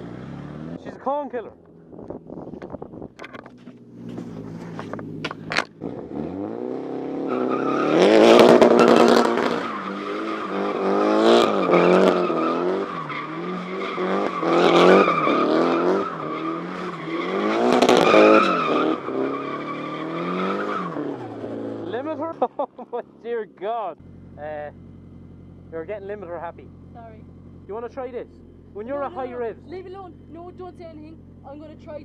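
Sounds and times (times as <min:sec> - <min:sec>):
car engine revving: 0:00.0 - 0:32.0
tyres squealing: 0:07.3 - 0:22.6.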